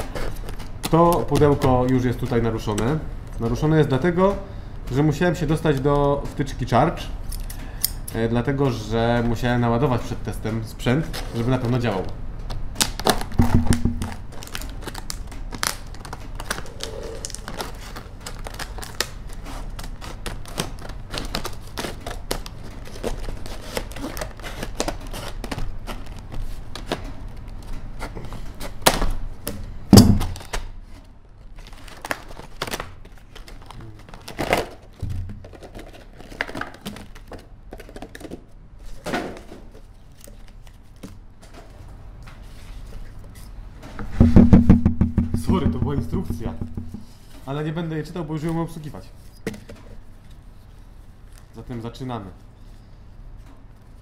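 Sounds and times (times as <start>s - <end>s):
plastic pack knocks: 13.1s - 14.6s, 29.9s - 30.5s, 44.1s - 47.1s.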